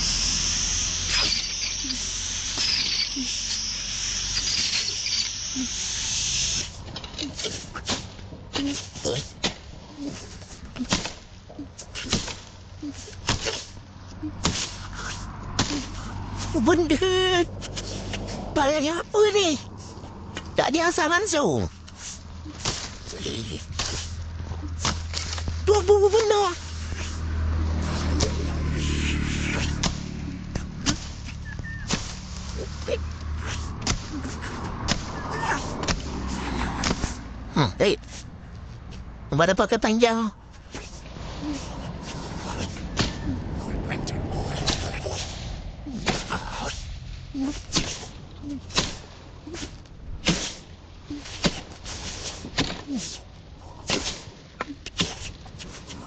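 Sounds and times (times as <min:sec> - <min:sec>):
brush cutter engine idling: 0:00.0 - 0:07.8
short low calls: 0:00.0 - 0:07.9
sharp cracks: 0:28.0 - 0:32.6.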